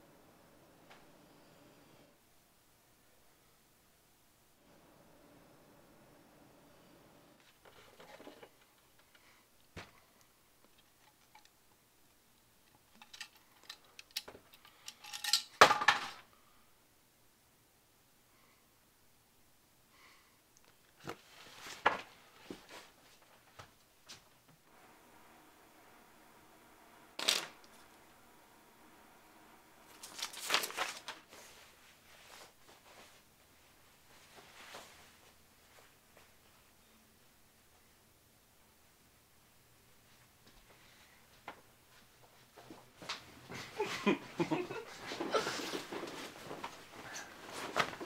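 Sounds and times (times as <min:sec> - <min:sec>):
paper rustling on wooden desk: 0:29.9 - 0:32.5.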